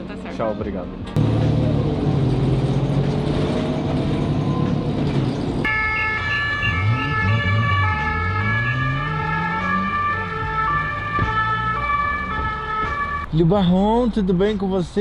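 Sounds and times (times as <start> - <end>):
city traffic: 0.0 - 15.0
low engine note rising: 1.2 - 13.3
emergency vehicle sirens: 5.6 - 13.4.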